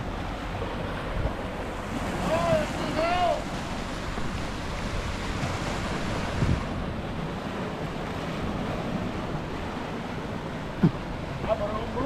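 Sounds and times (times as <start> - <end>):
surf washing against rocks: 0.0 - 12.0
wind buffeting microphone: 0.0 - 12.0
low thump: 10.8 - 11.0.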